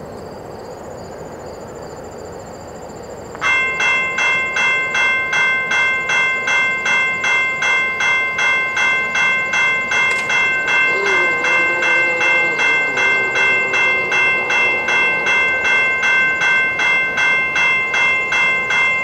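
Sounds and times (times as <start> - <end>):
railroad crossing bell ringing: 3.4 - 19.0
steady outdoor rumble: 8.6 - 19.0
high insect trill: 9.6 - 18.3.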